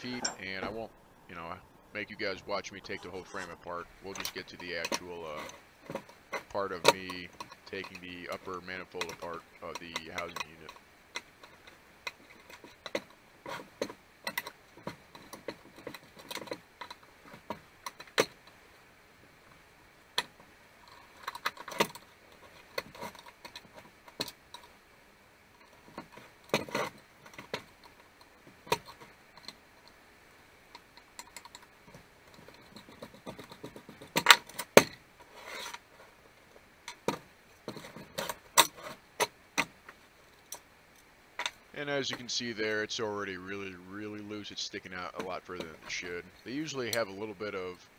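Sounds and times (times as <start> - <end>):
metal parts clinking: 0.0 - 0.7.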